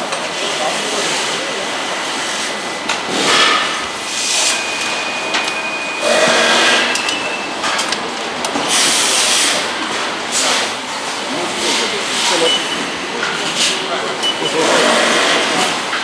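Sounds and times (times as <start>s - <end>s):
factory background din: 0.0s - 16.0s
hissing air bursts: 8.7s - 9.7s.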